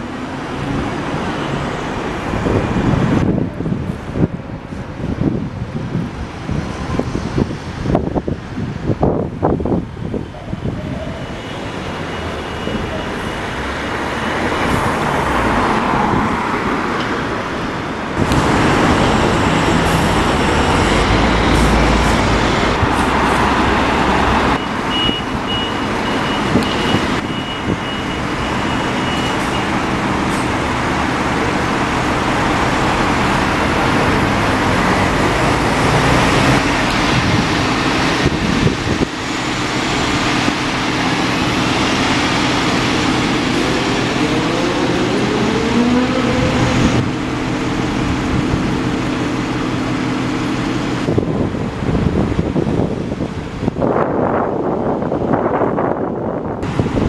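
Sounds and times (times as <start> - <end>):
bus engine hum: 0.0 - 57.0
road traffic: 0.0 - 57.0.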